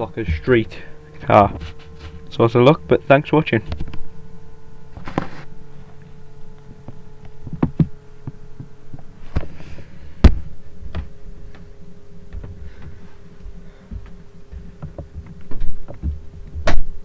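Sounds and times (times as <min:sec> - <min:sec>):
steady hum: 0:00.0 - 0:17.0
handling knocks and bumps: 0:06.8 - 0:09.6, 0:10.2 - 0:17.0.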